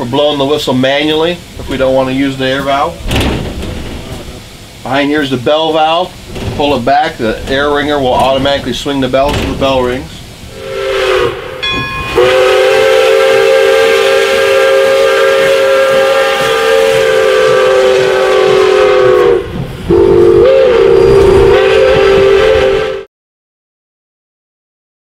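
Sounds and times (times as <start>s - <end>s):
steam hissing: 0.0s - 23.1s
steam locomotive whistle blowing: 10.5s - 23.1s.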